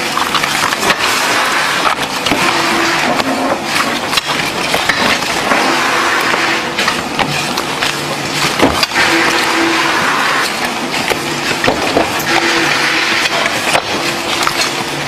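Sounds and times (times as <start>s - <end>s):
playing cards clicking and rustling: 0.0s - 5.5s
steady noisy din: 0.0s - 15.0s.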